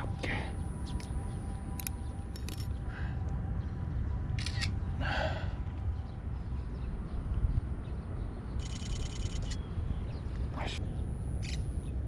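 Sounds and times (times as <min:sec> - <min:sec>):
steady low rumble: 0:00.0 - 0:12.0
camera shutter clicks: 0:04.4 - 0:04.8.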